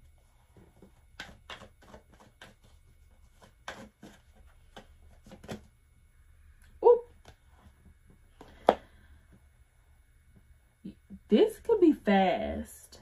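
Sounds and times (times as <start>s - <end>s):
cards being shuffled: 0.8s - 5.7s.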